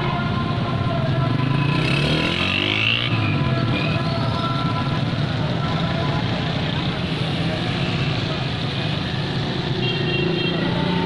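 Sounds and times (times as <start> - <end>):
traffic engine hum: 0.0 - 11.0.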